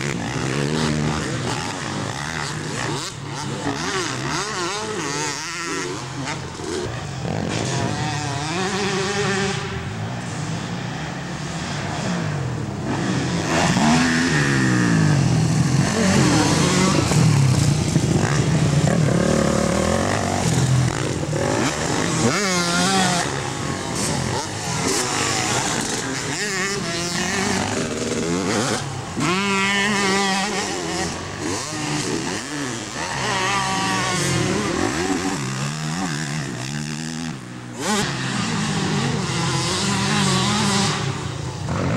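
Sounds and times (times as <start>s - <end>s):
dirt bike engines revving: 0.0s - 41.9s.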